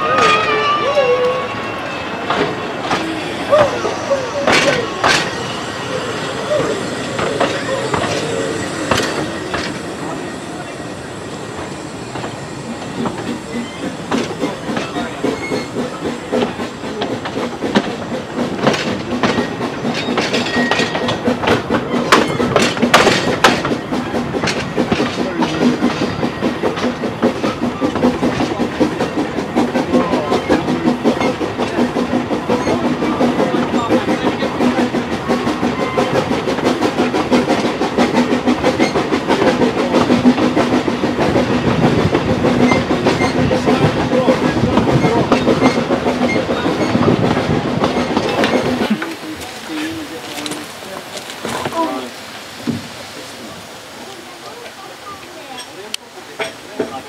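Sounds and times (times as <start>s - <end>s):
steam locomotive exhaust beats: 2.2s - 57.0s
wheels clicking over rail joints: 11.6s - 53.0s.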